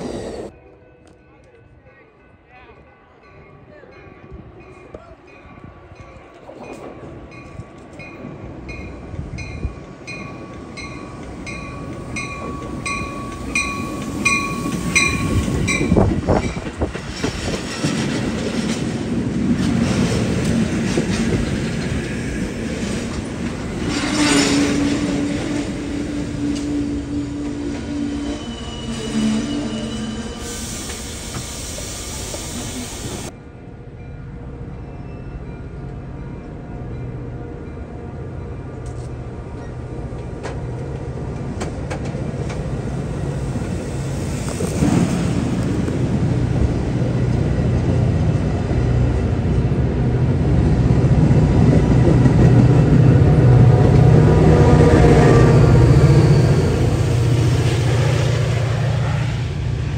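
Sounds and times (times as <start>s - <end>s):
train rumbling past: 0.0s - 2.4s, 3.1s - 59.9s
wheels squealing on rails: 10.4s - 18.1s, 23.2s - 33.3s, 52.3s - 59.9s
train brakes squealing: 11.6s - 16.0s, 23.8s - 25.5s, 26.1s - 33.3s, 54.9s - 58.4s.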